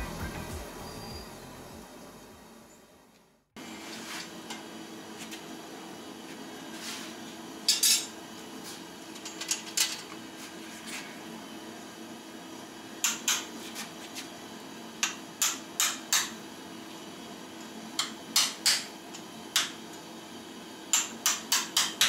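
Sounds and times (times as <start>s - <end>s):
shop hum: 0.0s - 22.0s
hammer striking steel on anvil: 15.0s - 16.4s, 18.0s - 19.0s, 20.9s - 22.0s.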